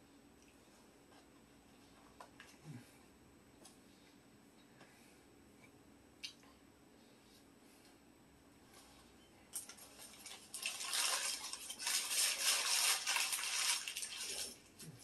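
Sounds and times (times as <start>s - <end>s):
wrapping paper crinkling: 9.6s - 14.8s.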